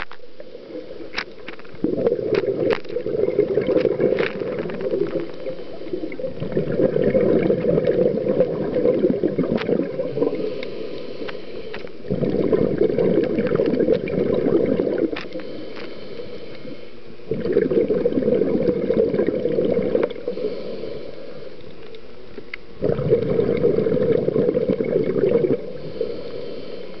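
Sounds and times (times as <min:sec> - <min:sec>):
exhaled bubbles rushing: 0:01.7 - 0:10.5, 0:12.0 - 0:15.2, 0:17.3 - 0:20.4, 0:22.8 - 0:26.0
regulator inhalations: 0:05.0 - 0:06.4, 0:10.0 - 0:12.1, 0:15.1 - 0:17.2, 0:20.1 - 0:21.8, 0:25.6 - 0:27.0
faint clicks: 0:21.5 - 0:22.7.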